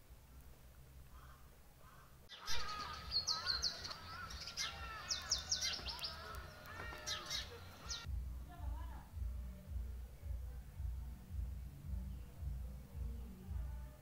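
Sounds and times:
low warbling bird calls: 0:01.1 - 0:08.1
birds chirping: 0:01.1 - 0:08.6.

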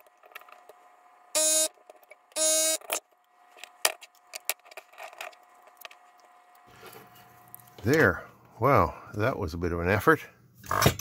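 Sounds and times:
desoldering vacuum pump buzzing: 0:00.0 - 0:08.5.

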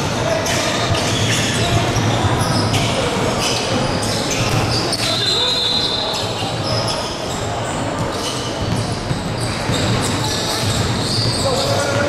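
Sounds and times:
sneakers squeaking on floor: 0:00.0 - 0:12.0
basketball bouncing: 0:07.7 - 0:12.0.

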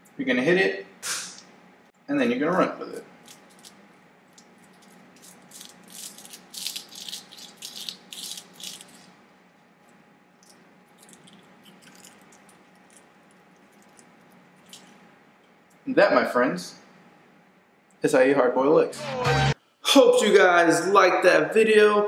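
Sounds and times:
egg shell crackling: 0:03.2 - 0:09.2, 0:09.9 - 0:15.1.

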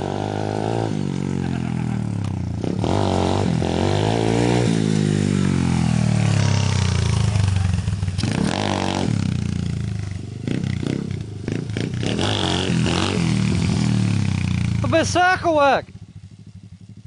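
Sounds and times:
pit bike engine revving: 0:00.0 - 0:17.0.

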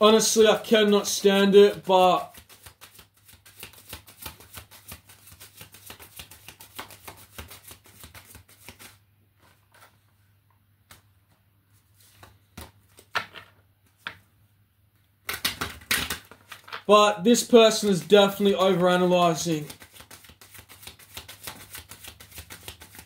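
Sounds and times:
cards shuffling: 0:00.4 - 0:09.9, 0:15.2 - 0:23.0.

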